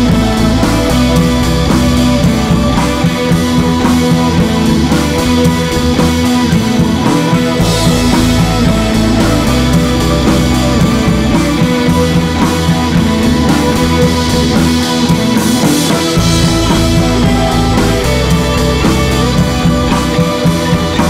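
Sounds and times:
rock music with guitar and drums: 0.0 - 21.0.

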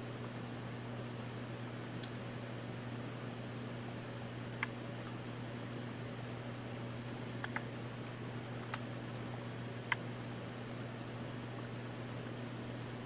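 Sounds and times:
steady low hum: 0.0 - 13.0
mouse and keyboard clicks: 4.5 - 4.8, 7.0 - 8.8, 9.5 - 10.4.

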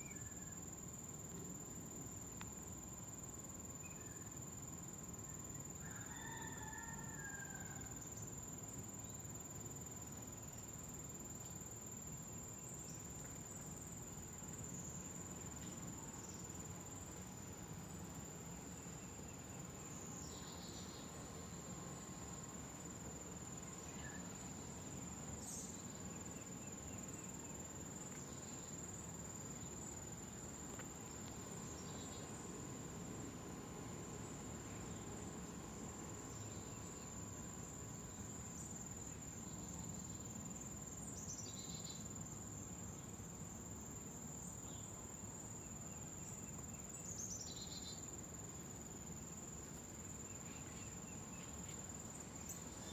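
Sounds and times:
high-pitched insect trill: 0.0 - 52.9.

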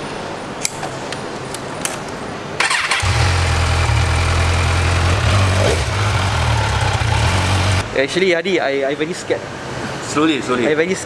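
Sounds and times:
motorcycle engine starting and idling: 2.6 - 7.8.

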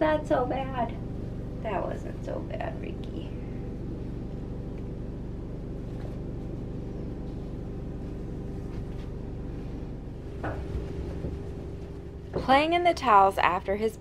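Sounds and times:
low motor hum: 0.0 - 14.0.

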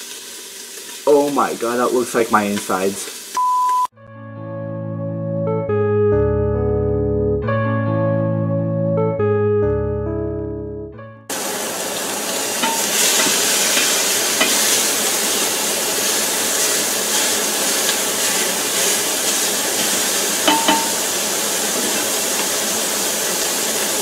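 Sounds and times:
sausage meat sizzling in pot: 0.0 - 3.9, 11.3 - 24.0
spoon clinking against pot: 20.4 - 21.0.

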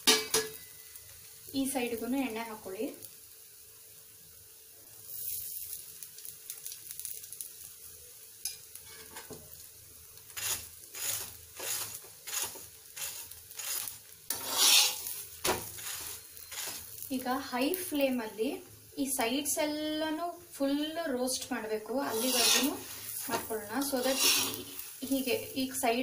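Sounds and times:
oil sizzling on a hot pan: 0.0 - 26.0
spatula scraping a pan: 8.8 - 9.3, 10.3 - 17.1, 22.0 - 25.5.

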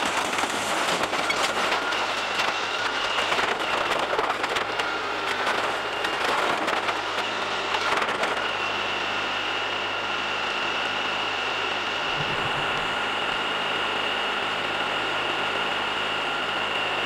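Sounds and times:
tractor engine whining: 11.5 - 14.8.

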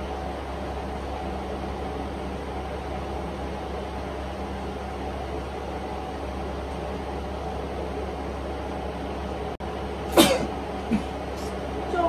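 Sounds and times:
low background hum: 0.0 - 12.0
man fake sneezing: 10.1 - 11.1.

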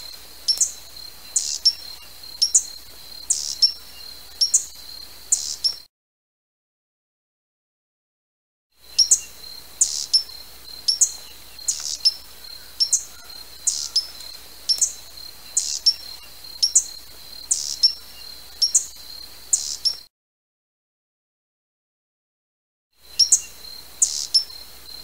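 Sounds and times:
hummingbird chip calls: 0.0 - 5.8, 8.9 - 20.1, 23.1 - 25.0.

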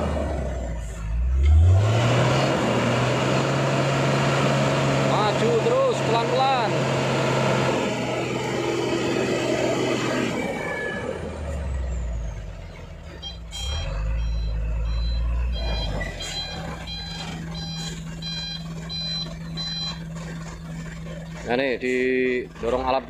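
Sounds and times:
diesel truck engine rumbling: 0.0 - 23.0
reversing beeper: 7.9 - 21.5.

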